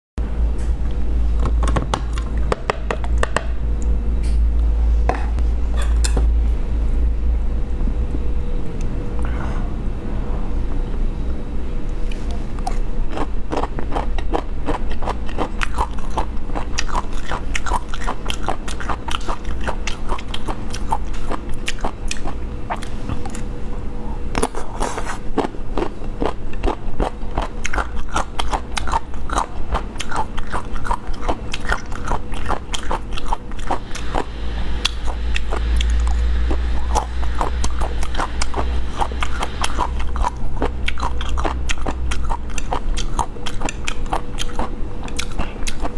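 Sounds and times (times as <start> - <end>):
close-miked chewing: 12.0 - 23.5, 24.4 - 45.9.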